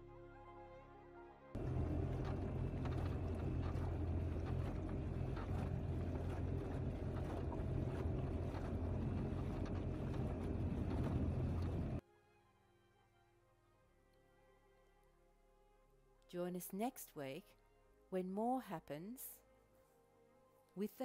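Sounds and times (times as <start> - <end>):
outboard motor droning: 1.6 - 12.0
water rushing along hull: 1.6 - 12.0.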